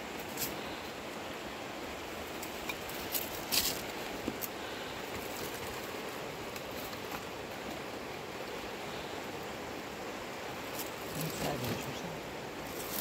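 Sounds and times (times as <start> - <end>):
river flowing over rocks: 0.0 - 13.0
crackly rustle of plastic: 12.6 - 13.0.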